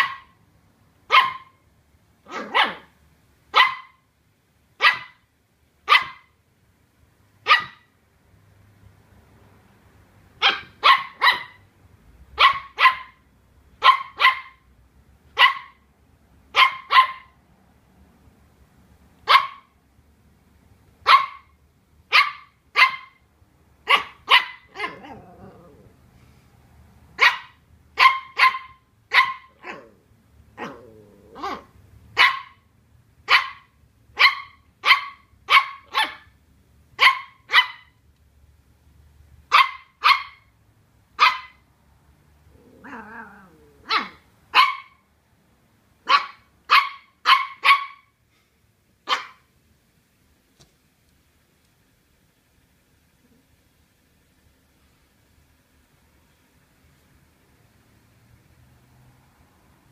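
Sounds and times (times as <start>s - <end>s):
puppy barking sharply: 0.0s - 0.4s, 1.0s - 1.6s, 2.2s - 4.1s, 4.8s - 6.4s, 7.4s - 7.9s, 10.4s - 11.7s, 12.4s - 14.7s, 15.3s - 15.9s, 16.5s - 17.4s, 19.2s - 19.8s, 21.0s - 25.2s, 27.2s - 29.9s, 30.6s - 36.4s, 37.0s - 38.0s, 39.5s - 40.6s, 41.2s - 41.7s, 43.8s - 45.1s, 46.0s - 48.2s, 49.0s - 49.5s
puppy growling low: 24.8s - 26.2s, 29.6s - 31.7s, 42.4s - 44.2s.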